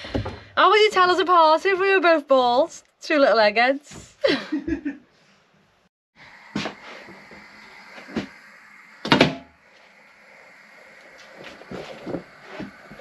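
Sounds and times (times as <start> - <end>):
faint steady hiss: 6.2 - 13.0.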